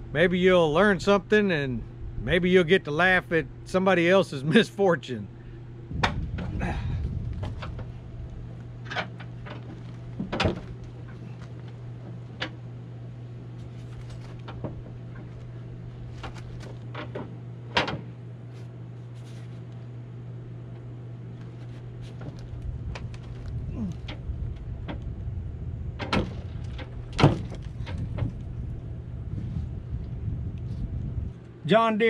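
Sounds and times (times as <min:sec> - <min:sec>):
steady low hum: 0:00.0 - 0:32.0
cargo bed clicks and knocks: 0:08.8 - 0:11.5, 0:26.0 - 0:28.4.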